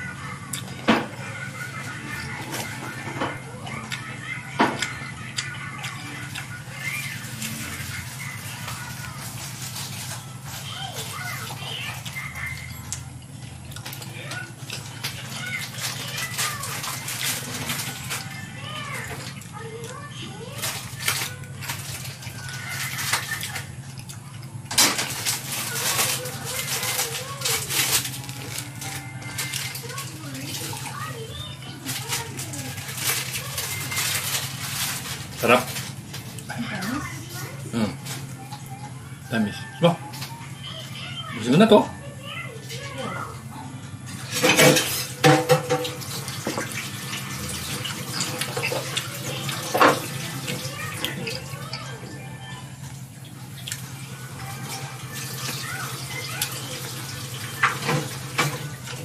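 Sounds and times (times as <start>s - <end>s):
loud rustling of fruit handled: 5.8s - 12.6s, 13.8s - 23.8s, 24.9s - 38.5s.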